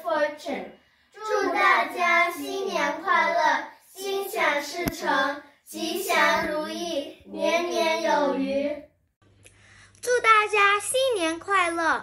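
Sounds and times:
girls singing together: 0:00.0 - 0:09.0.

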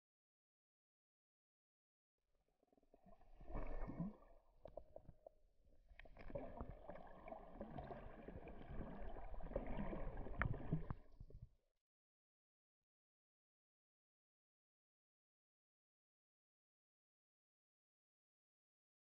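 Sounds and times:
water gurgling and sloshing: 0:02.4 - 0:11.5.

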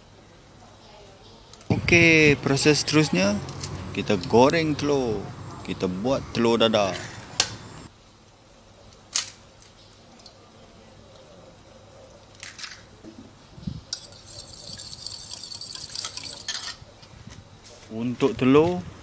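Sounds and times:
fork beating eggs in bowl: 0:14.0 - 0:16.6.

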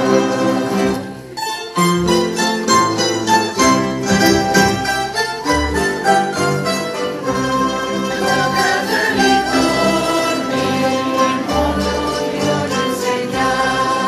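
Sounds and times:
audience singing along: 0:00.0 - 0:01.4, 0:07.2 - 0:14.0
mandolin orchestra playing: 0:00.0 - 0:14.0.

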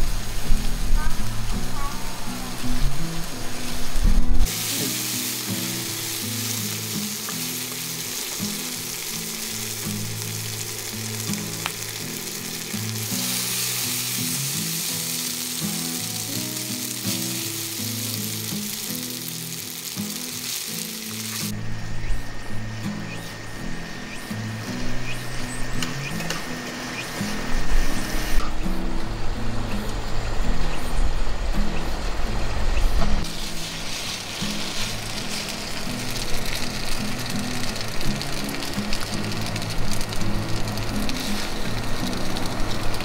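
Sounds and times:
food sizzling in oil: 0:00.0 - 0:21.6, 0:33.2 - 0:43.0.

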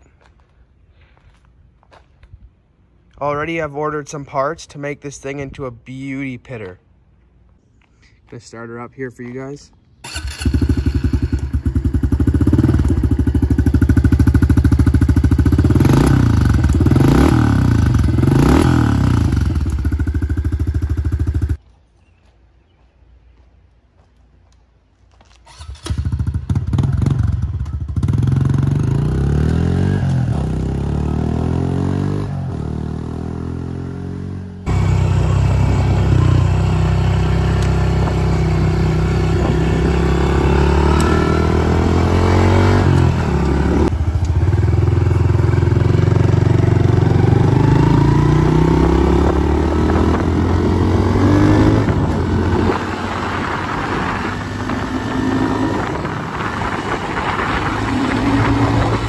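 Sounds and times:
motorbike engine revving: 0:10.0 - 0:21.6, 0:25.5 - 0:59.0.

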